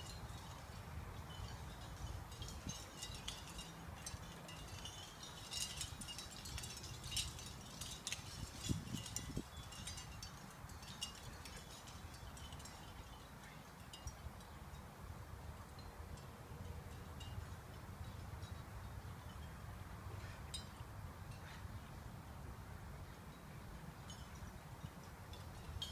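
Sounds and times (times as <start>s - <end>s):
metallic tinkling clinks: 0.0s - 14.9s, 24.0s - 25.9s.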